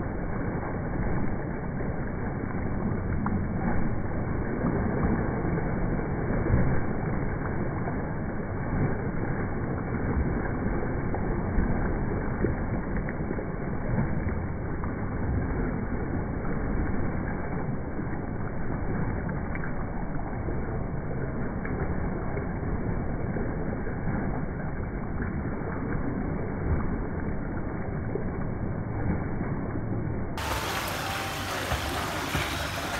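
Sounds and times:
water splashing from kicking: 30.4 - 32.9.

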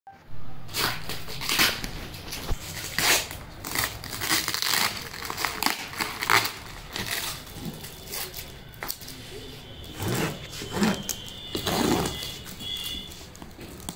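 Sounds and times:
scissors cutting packing tape: 0.7 - 9.2, 10.0 - 13.9
tape crinkling and tearing: 0.7 - 9.4, 10.0 - 13.9.

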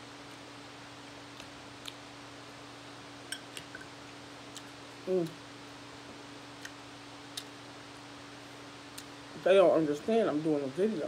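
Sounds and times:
faint steady hum: 0.0 - 11.0
eating clicks and smacks: 1.3 - 2.1, 3.3 - 3.8, 6.6 - 7.6
person humming mm: 5.0 - 5.4.

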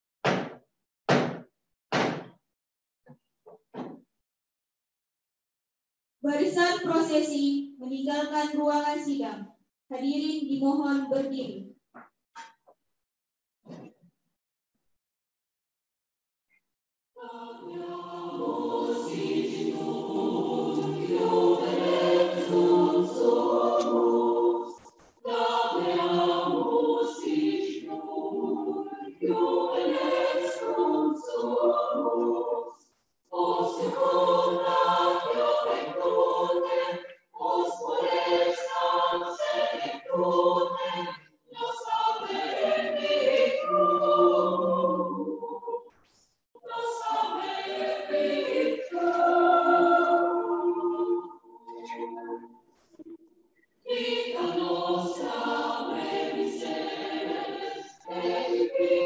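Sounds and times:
choir singing slow song: 17.2 - 45.9, 46.6 - 53.2, 53.8 - 59.0.

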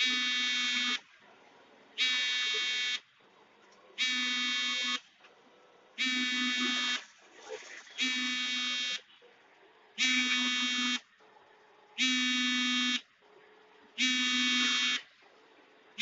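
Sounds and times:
electronic buzzer beeping: 0.0 - 1.0, 2.0 - 3.1, 4.0 - 5.0, 6.0 - 7.1, 8.0 - 9.1, 10.0 - 11.1, 12.0 - 13.1, 14.0 - 15.1.

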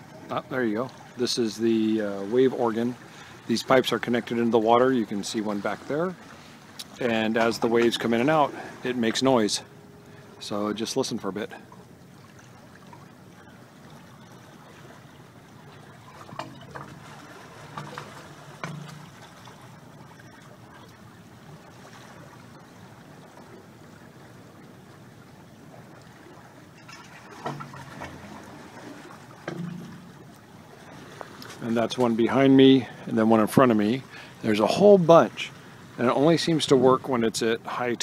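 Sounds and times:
waves washing through pipe: 0.0 - 38.0
hollow gurgles: 25.9 - 35.1.

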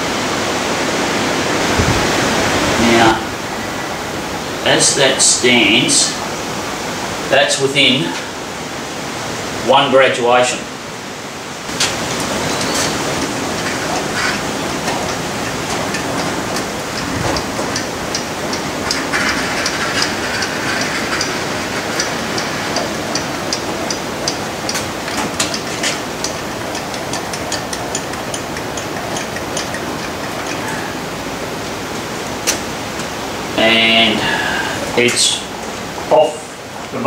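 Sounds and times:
steady hiss: 0.0 - 37.0
lathe carriage metallic clicks: 11.7 - 31.4.

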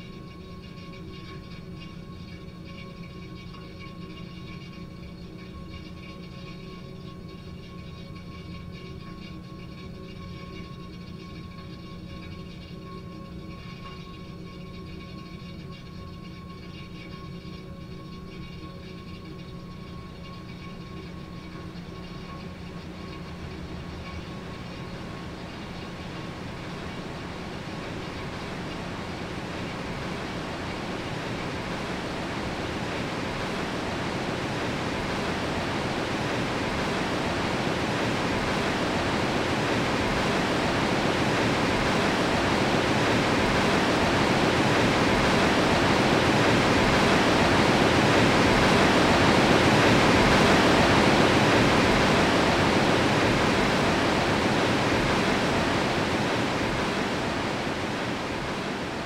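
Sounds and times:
waterfall rushing: 26.3 - 59.0.

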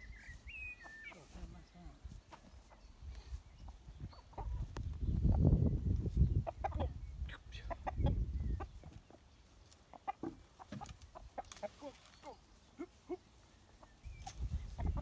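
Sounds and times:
young chickens clucking: 0.0 - 15.0
microphone rumble: 4.0 - 8.8.

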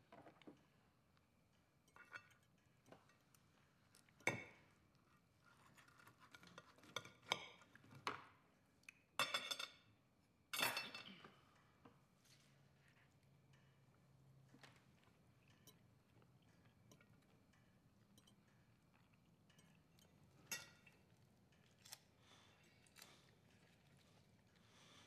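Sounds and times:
cutlery clinking on plates: 9.2 - 9.9, 10.5 - 11.3, 19.5 - 21.1.

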